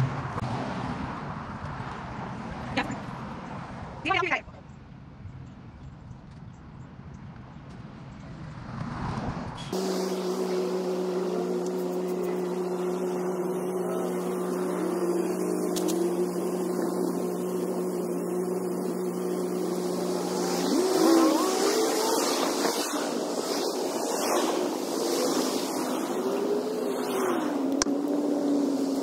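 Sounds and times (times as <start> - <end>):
small lawn equipment engine: 9.7 - 29.0.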